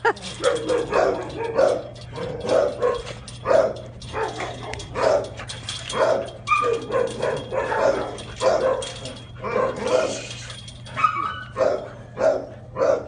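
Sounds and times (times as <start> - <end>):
dogs barking: 0.2 - 10.3, 10.9 - 13.0
dog yelp: 5.9 - 10.2, 11.0 - 13.0.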